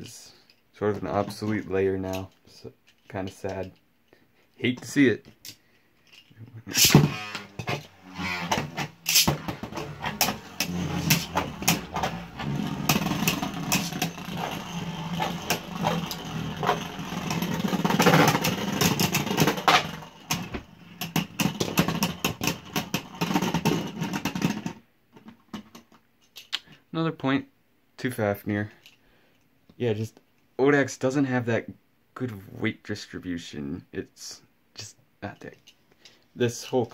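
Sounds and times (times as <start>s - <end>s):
spinning tops whirring: 6.7s - 22.8s
sharp plastic clacks: 9.1s - 12.2s.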